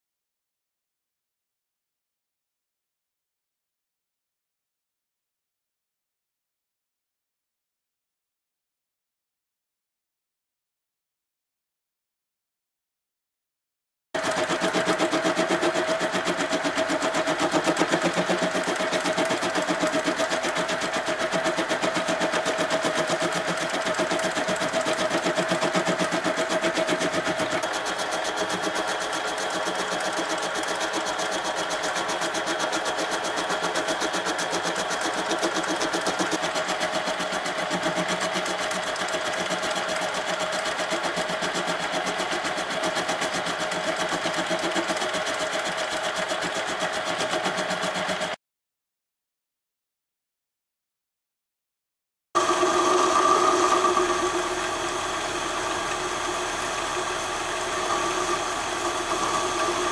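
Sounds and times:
metal lathe whining and rattling: 14.2s - 48.4s, 52.4s - 59.9s.

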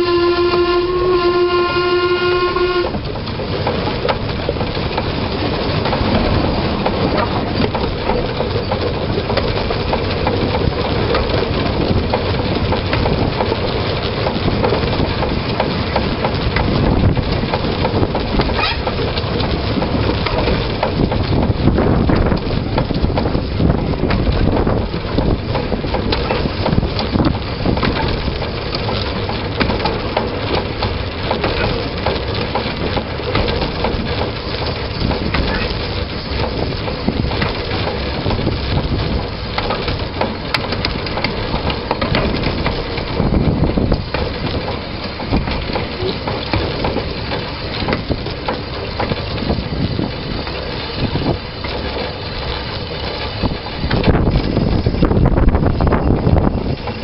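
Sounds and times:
steam locomotive whistle: 0.0s - 3.1s
train wheels on rails: 0.0s - 57.0s.

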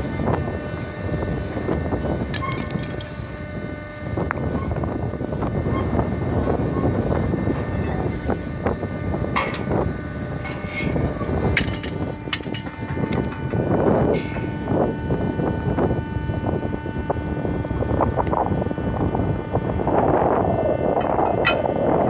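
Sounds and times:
crane engine and hydraulics: 0.0s - 22.0s
sharp metal clanks: 11.6s - 13.6s.

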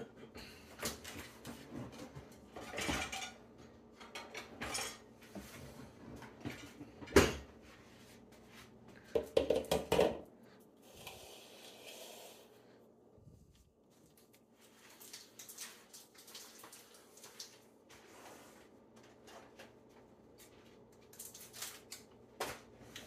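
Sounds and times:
utensils knocking on counter: 9.2s - 10.2s.

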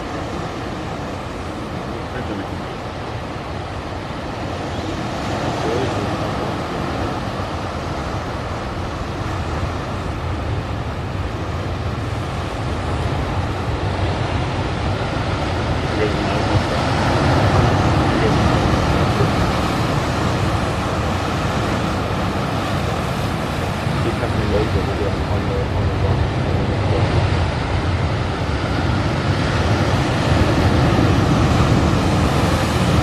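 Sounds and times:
sea surf on rocky shore: 0.0s - 33.0s
wind: 0.0s - 33.0s.

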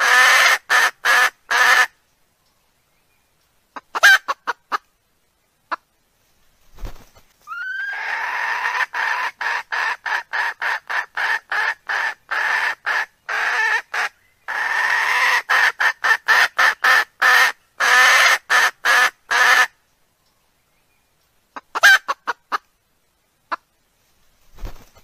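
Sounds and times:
recorded hen clucking: 3.7s - 4.9s, 5.7s - 5.9s, 7.5s - 19.7s, 21.5s - 22.7s.

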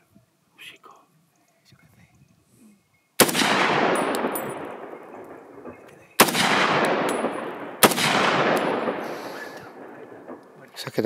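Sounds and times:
rifle shots echoing: 3.2s - 11.0s.

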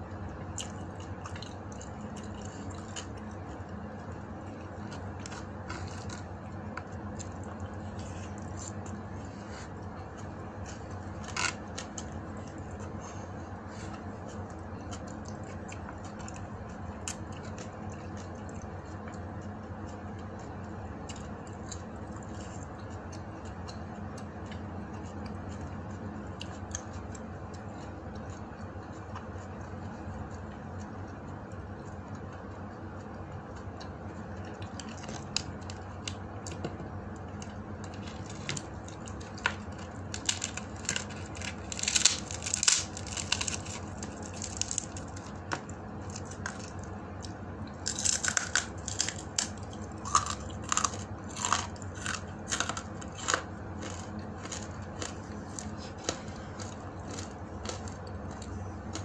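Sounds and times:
steady low hum: 0.0s - 59.0s
dried fish crackling and snapping: 0.4s - 9.0s, 9.6s - 13.2s, 33.8s - 59.0s.

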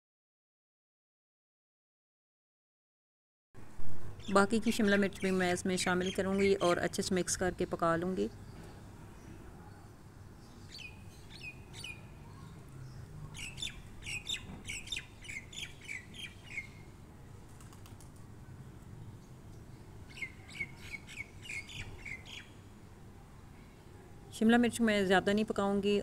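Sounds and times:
small bird chirping: 8.3s - 16.9s, 19.2s - 22.6s.

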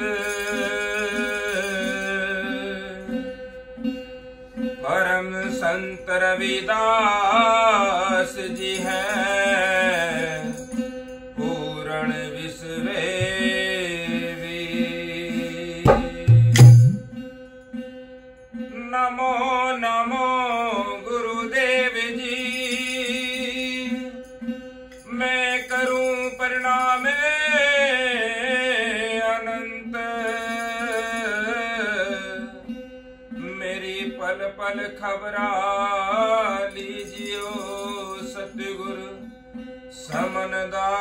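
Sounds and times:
man singing devotional song: 0.0s - 4.0s, 4.6s - 17.3s, 18.5s - 41.0s
plucked string drone: 11.4s - 17.5s
sharp knocks: 13.2s - 13.6s, 15.9s - 17.2s
heavy thump: 15.9s - 17.2s.

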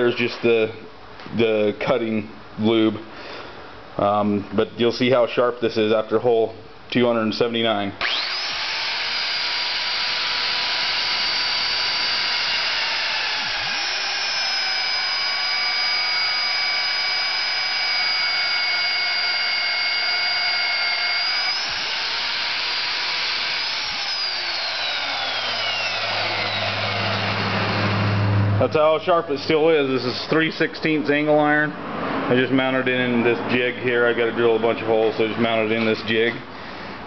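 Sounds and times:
drill motor high whine: 8.0s - 28.6s
low hum: 8.0s - 28.9s.

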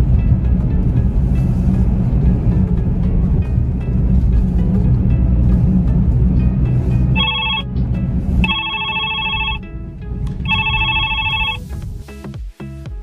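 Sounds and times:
background music: 0.0s - 13.0s
telephone ringtone trilling: 7.2s - 7.7s, 8.4s - 9.7s, 10.4s - 11.6s.

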